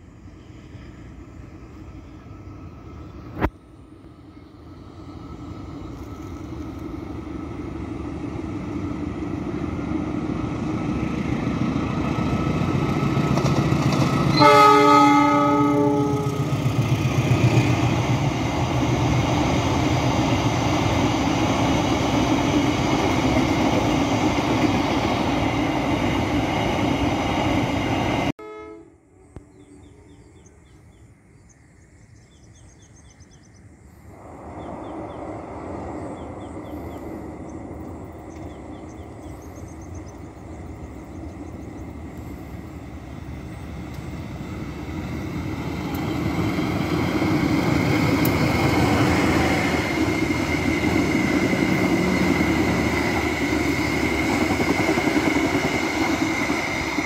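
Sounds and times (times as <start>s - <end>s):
diesel locomotive passing: 0.0s - 31.7s, 32.4s - 57.0s
train horn blast: 14.3s - 16.6s, 28.4s - 29.1s.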